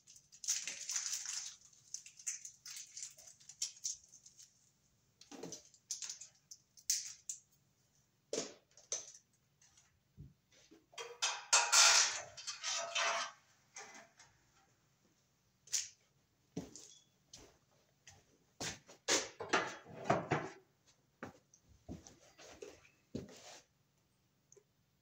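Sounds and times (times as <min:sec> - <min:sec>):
metal cable clicking and rattling: 0:00.1 - 0:04.6, 0:05.2 - 0:07.4.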